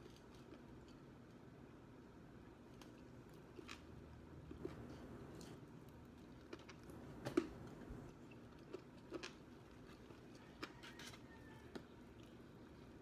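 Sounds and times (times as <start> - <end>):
crunchy chewing: 2.6 - 13.0.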